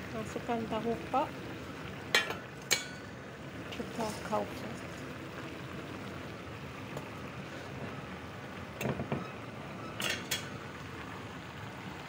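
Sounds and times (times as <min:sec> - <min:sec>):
food simmering hiss: 0:00.0 - 0:12.0.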